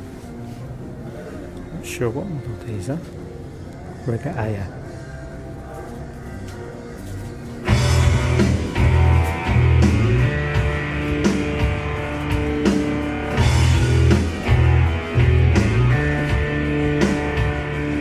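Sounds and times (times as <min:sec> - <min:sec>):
guitar-led rock music: 0:07.6 - 0:18.0.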